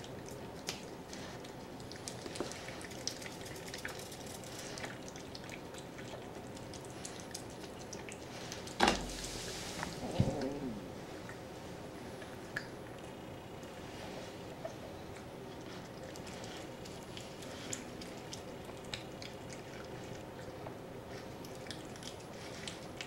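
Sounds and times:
cat chewing wet food: 0.0s - 8.8s, 11.1s - 23.0s.

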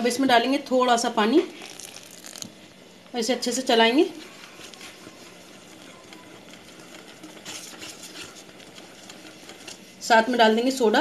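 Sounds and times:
whisk stirring batter in bowl: 3.8s - 11.0s.

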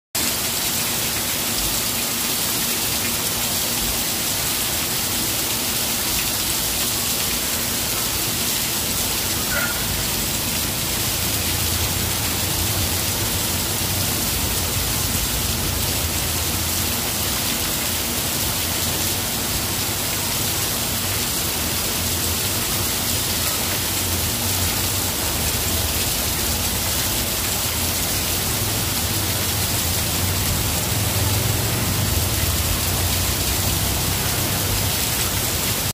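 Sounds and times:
heavy rain on pavement: 0.2s - 35.9s.

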